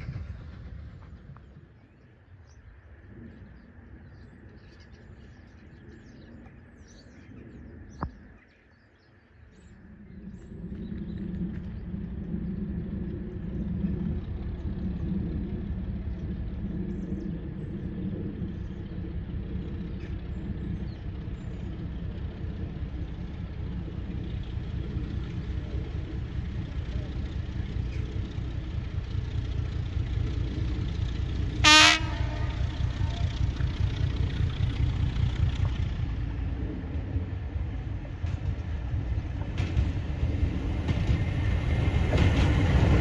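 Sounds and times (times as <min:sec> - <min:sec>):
diesel locomotive rumble: 0:00.0 - 0:08.3, 0:09.3 - 0:43.0
locomotive horn blast: 0:31.6 - 0:33.9.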